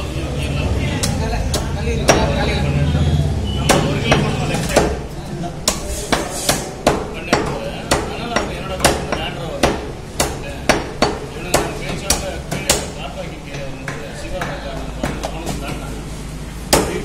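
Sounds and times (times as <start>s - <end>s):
cleaver chopping on wooden block: 5.6s - 12.9s.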